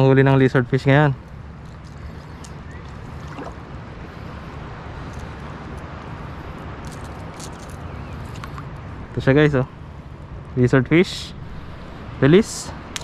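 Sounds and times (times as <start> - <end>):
seawater washing along shore: 3.0 - 4.3.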